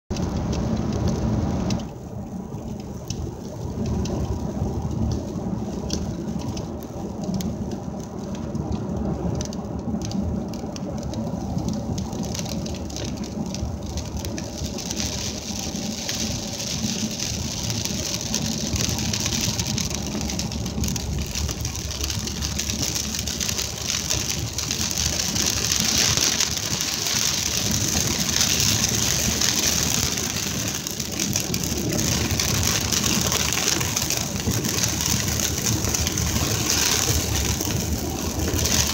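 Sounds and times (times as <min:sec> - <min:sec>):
road and engine rumble: 0:00.0 - 0:38.9
rain on car windshield: 0:00.1 - 0:38.9
tyres on wet road: 0:00.1 - 0:38.9.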